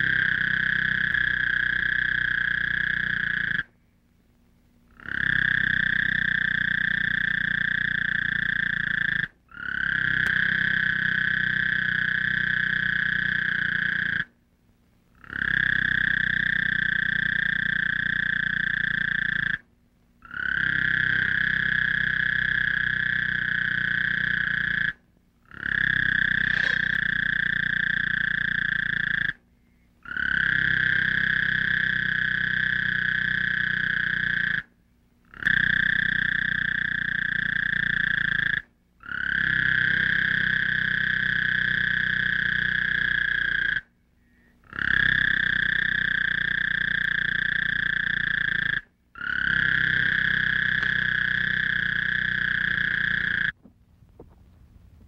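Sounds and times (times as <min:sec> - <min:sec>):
high-pitched trilling drone: 0:26.3 - 0:27.1
low hum: 0:49.8 - 0:55.0.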